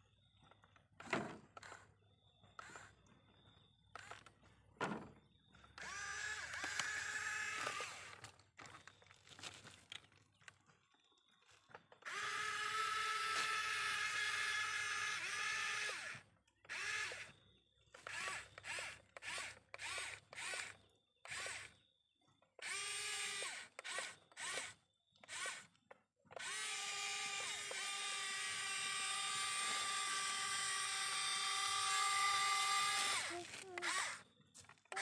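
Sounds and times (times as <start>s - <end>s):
small electric motor whining: 2.5s - 3.1s, 3.9s - 4.4s, 5.7s - 8.8s, 12.0s - 21.8s, 22.5s - 35.0s.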